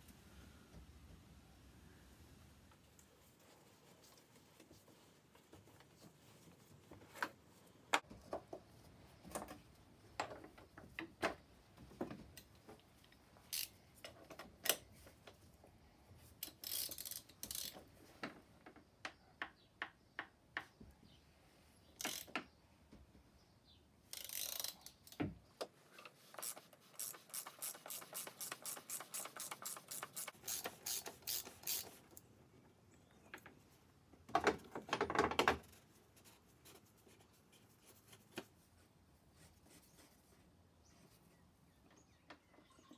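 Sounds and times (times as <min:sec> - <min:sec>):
ratchet wrench clicking: 0:13.5 - 0:13.8, 0:16.4 - 0:17.8, 0:22.0 - 0:22.3, 0:24.1 - 0:25.2, 0:26.4 - 0:32.0.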